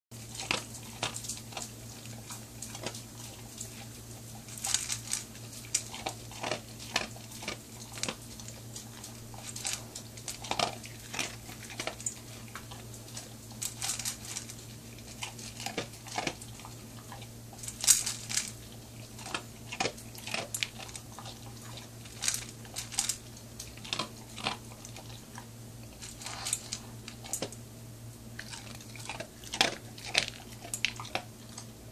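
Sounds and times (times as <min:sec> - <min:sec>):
dog crunching kibble: 0:00.2 - 0:31.9.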